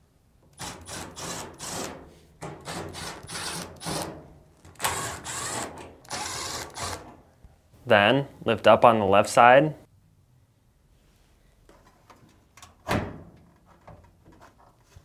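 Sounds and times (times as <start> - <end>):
cordless driver running: 4.8 - 7.0.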